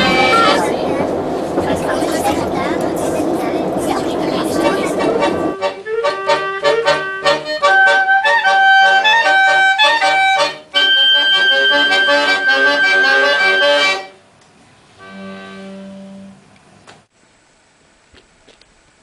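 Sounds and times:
accordion: 4.4s - 14.2s, 15.0s - 16.4s
clarinet: 5.0s - 14.2s, 15.0s - 16.4s.

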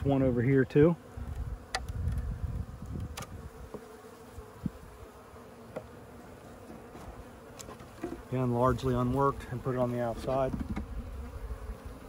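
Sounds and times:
bees humming: 0.0s - 12.0s
hive tool knocking on wooden frames: 1.3s - 2.2s, 2.9s - 4.0s, 5.6s - 6.0s, 6.6s - 8.3s, 10.0s - 11.1s.

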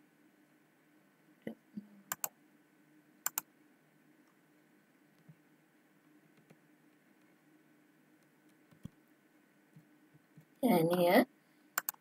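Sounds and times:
computer mouse clicks: 2.1s - 2.3s, 3.2s - 3.5s, 6.4s - 6.6s, 11.8s - 12.0s.

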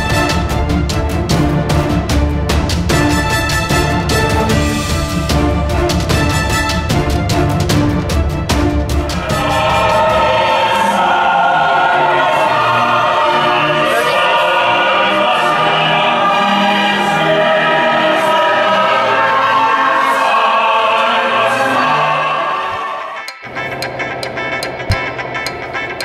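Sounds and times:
choir-like voices singing chords: 8.6s - 23.6s.

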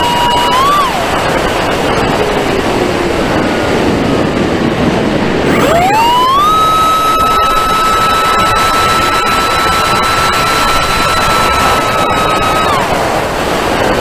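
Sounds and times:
electric motor whine: 0.0s - 1.6s, 5.4s - 13.6s
wind rushing: 0.0s - 14.0s.

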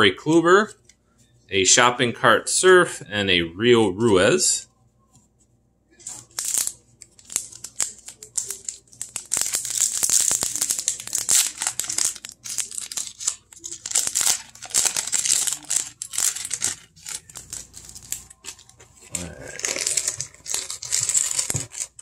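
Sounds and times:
foil wrapper tearing and crinkling: 6.0s - 22.0s.

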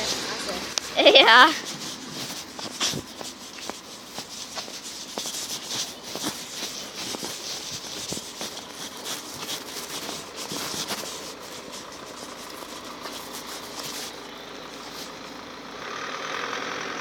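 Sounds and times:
plastic toy scraping on asphalt: 0.0s - 15.4s
phone handling rub: 0.8s - 14.2s.

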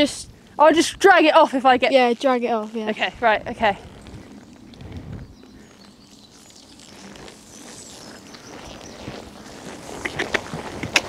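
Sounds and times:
pony hooves on sand: 1.6s - 11.0s.

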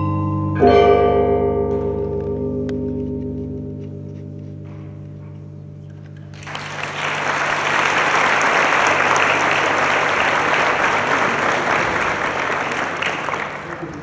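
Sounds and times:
audience applause: 6.3s - 14.0s.

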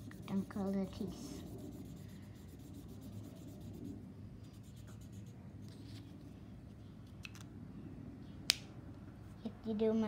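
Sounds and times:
felt-tip marker rubbing on paper: 0.0s - 5.4s.

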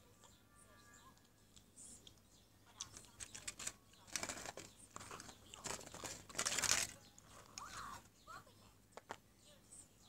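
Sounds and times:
rustling and crinkling handling noise: 2.8s - 8.2s.

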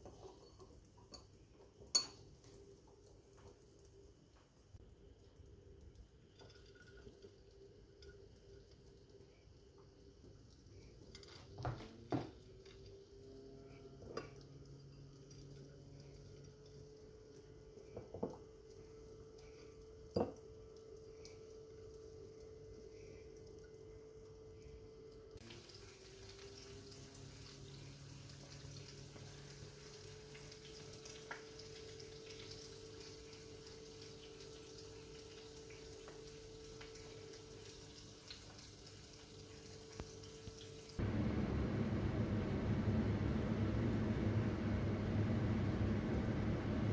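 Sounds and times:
low steady hum: 0.0s - 38.6s, 39.4s - 46.9s
liquid pouring: 5.0s - 11.4s
faint hum: 13.0s - 26.4s, 39.5s - 46.9s
loud low rushing noise: 41.0s - 46.9s.

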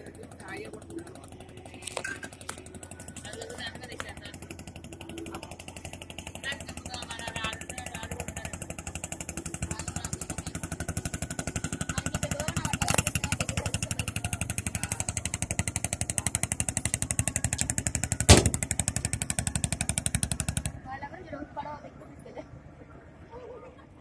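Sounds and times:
motorboat engine chugging: 0.0s - 24.0s
sharp knock: 18.3s - 18.6s.

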